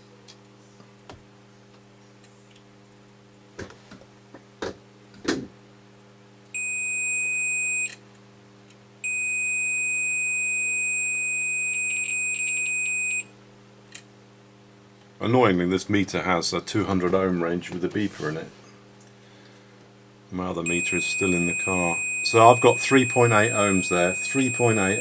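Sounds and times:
multimeter continuity beeping: 6.6s - 8.0s, 9.0s - 13.3s, 20.6s - 25.0s.

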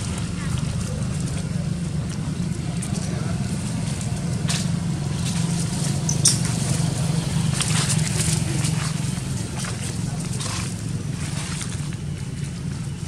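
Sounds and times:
dry leaves rustling and crackling: 0.0s - 13.0s
monkeys scampering over leaves: 0.0s - 13.0s
steady low hum: 0.0s - 13.0s.

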